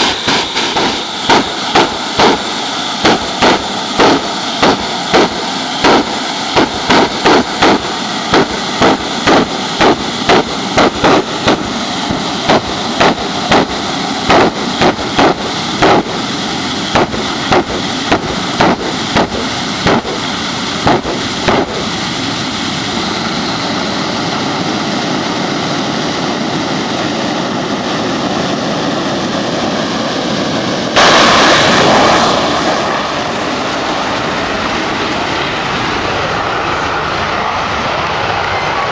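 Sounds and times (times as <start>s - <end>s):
afterburner popping: 0.0s - 24.8s, 31.0s - 35.0s
jet engine running: 0.0s - 38.9s
loud afterburner blast: 0.0s - 38.9s.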